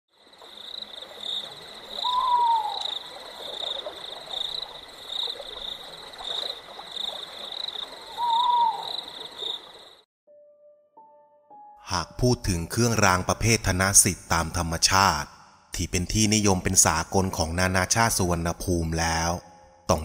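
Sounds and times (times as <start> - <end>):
insects chirring: 0.1 - 10.1.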